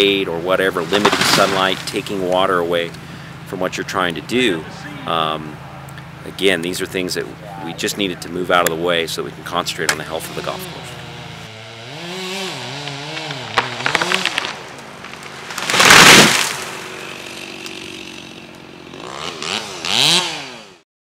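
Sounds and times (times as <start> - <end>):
tree crashing to the ground: 0.7 - 2.5, 12.0 - 18.0
chainsaw revving: 0.9 - 2.3, 9.9 - 20.8.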